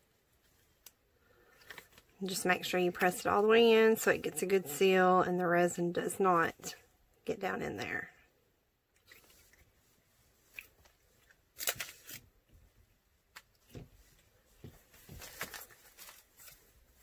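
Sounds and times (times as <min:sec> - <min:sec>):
plastic bag rustling: 0:14.5 - 0:17.0.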